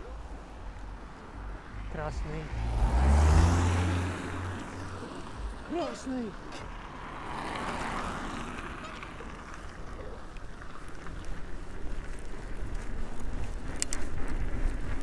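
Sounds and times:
wind rumbling on microphone: 7.1 - 15.0.

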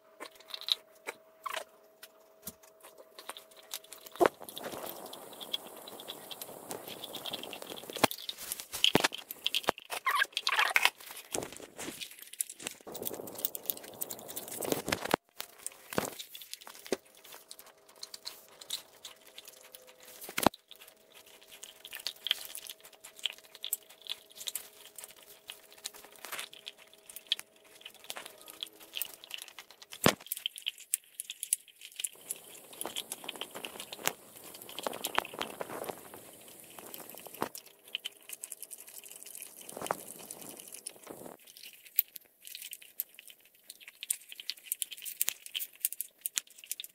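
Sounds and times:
dog crunching on bone: 0.2 - 46.9
loud bone cracks: 2.9 - 46.9.

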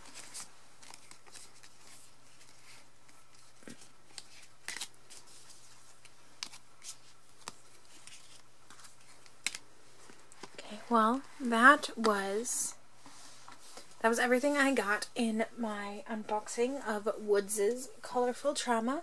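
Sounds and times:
cards rustling: 0.0 - 10.6.

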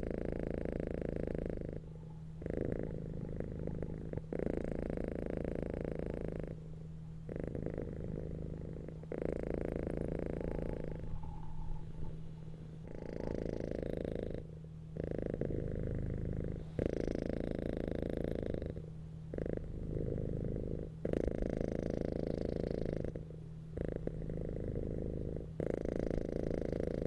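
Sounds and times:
cat purring: 0.0 - 27.0.

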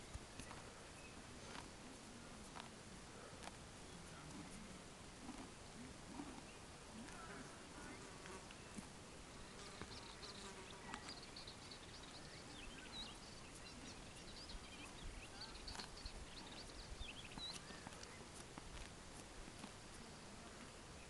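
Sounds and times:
small birds chirping: 6.2 - 21.0.

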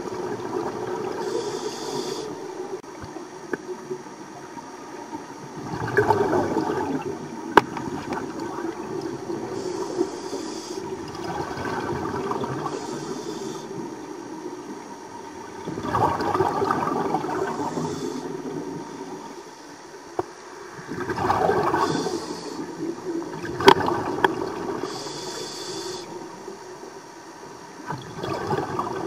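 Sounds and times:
exhaled bubbles gurgling: 0.0 - 27.0, 27.8 - 29.0
regulator inhale hiss: 1.0 - 2.8, 9.3 - 11.1, 12.4 - 14.4, 17.2 - 19.9, 21.6 - 23.2, 24.6 - 26.7.

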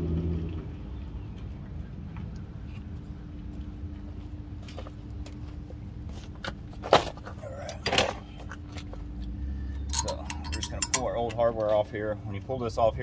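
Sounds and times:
steady low hum: 0.0 - 13.0
metal brake parts clinking: 9.8 - 11.9.

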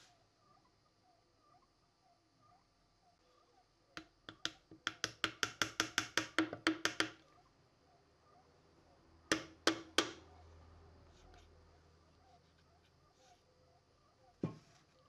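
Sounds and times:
sharp taps on wooden pin: 4.0 - 7.2, 9.3 - 10.2.

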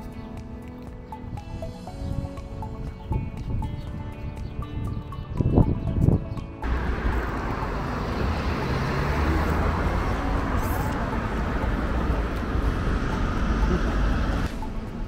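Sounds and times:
background music: 0.0 - 15.0
road traffic: 6.0 - 15.0.

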